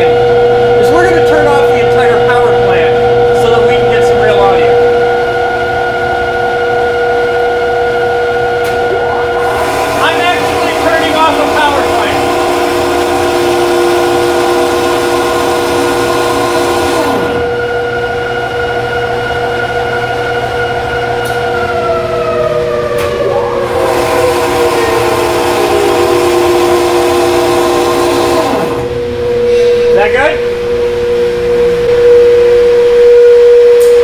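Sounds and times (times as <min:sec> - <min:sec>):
generators whining and humming: 0:00.0 - 0:34.0
rushing noise: 0:08.3 - 0:17.6.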